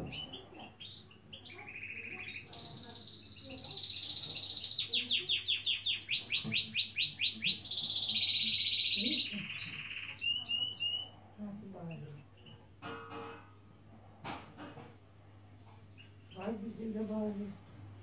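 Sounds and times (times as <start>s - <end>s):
finch chirps: 0.0s - 11.2s
finch singing trills: 0.0s - 11.2s.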